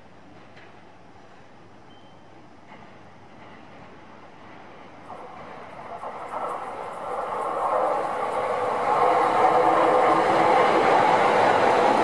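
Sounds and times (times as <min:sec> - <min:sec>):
electric train passing: 0:03.4 - 0:12.0.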